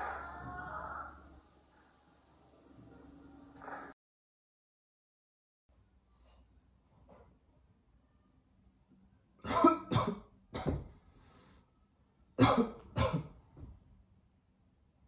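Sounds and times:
person coughing: 9.4s - 10.9s, 12.4s - 13.4s.

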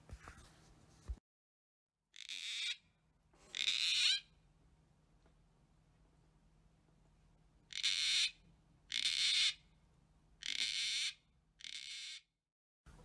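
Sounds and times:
cockatoo harsh scratchy calls: 2.1s - 4.3s, 7.7s - 9.7s, 10.4s - 12.3s.

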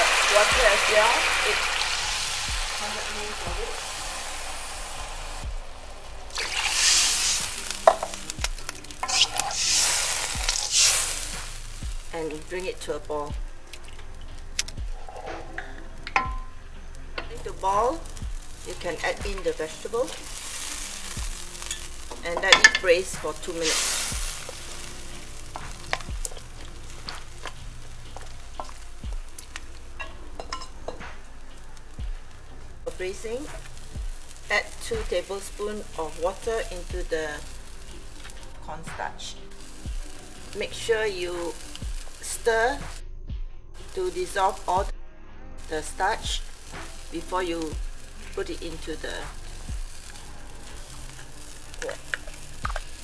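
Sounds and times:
spatula scraping and knocking wok: 0.0s - 13.0s, 13.8s - 42.7s
liquid sizzling in a wok: 0.0s - 43.0s, 43.8s - 44.9s, 45.6s - 53.0s
dull low thumps: 5.4s - 6.3s, 11.4s - 12.1s, 13.3s - 13.7s, 14.8s - 15.1s, 18.1s - 18.6s, 25.7s - 26.3s, 27.6s - 29.4s, 31.9s - 32.4s, 33.5s - 34.4s, 39.9s - 40.2s, 41.8s - 42.1s, 42.9s - 43.8s, 47.7s - 48.0s, 49.3s - 50.0s.

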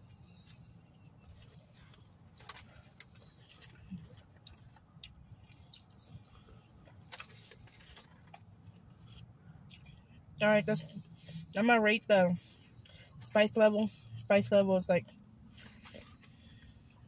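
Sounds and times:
chewing: 0.3s - 10.2s.

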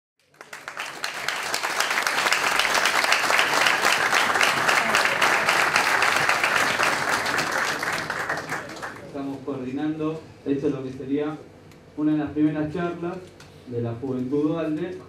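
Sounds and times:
audience applauding: 0.2s - 9.1s.

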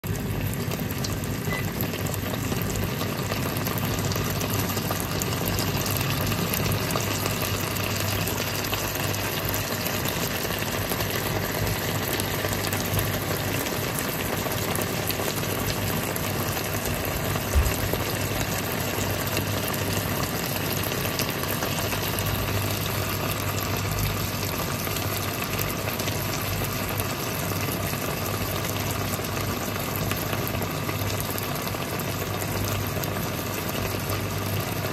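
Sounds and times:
sauce bubbling and sizzling: 0.0s - 34.9s.

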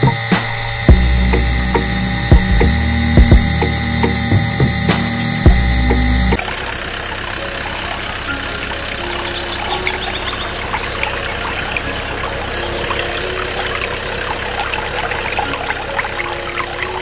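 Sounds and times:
juice pouring into plastic cup: 10.4s - 17.0s.

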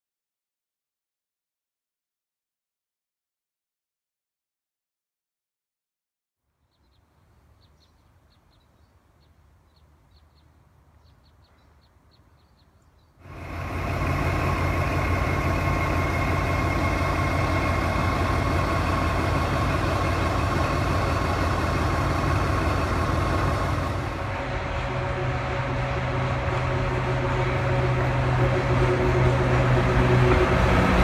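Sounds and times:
diesel locomotive engine idling: 13.2s - 31.0s.

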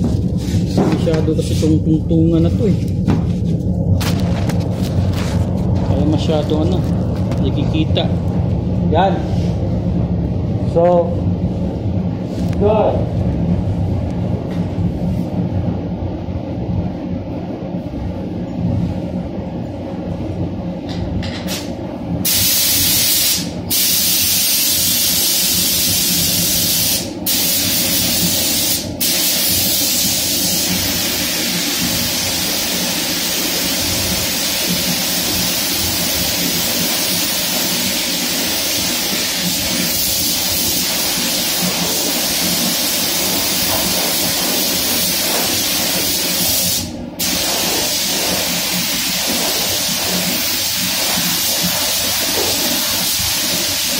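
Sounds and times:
paint booth low rumble: 0.0s - 53.9s
spray gun hissing: 22.2s - 53.9s.

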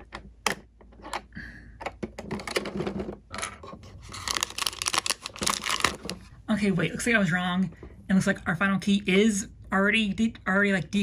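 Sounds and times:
wrapper rustling and crinkling: 4.0s - 6.3s.

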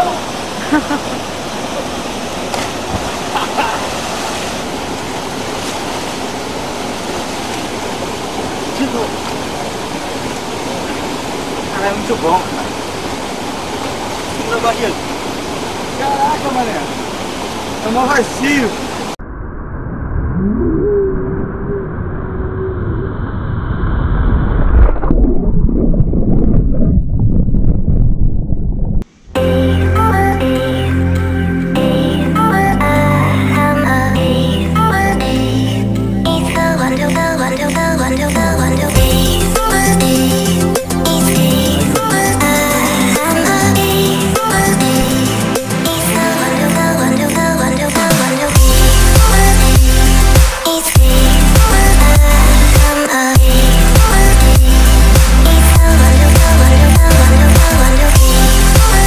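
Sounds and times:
waterfall and rapids rushing: 0.0s - 19.2s, 29.1s - 59.0s
underwater gurgling and rumbling: 19.2s - 29.0s.

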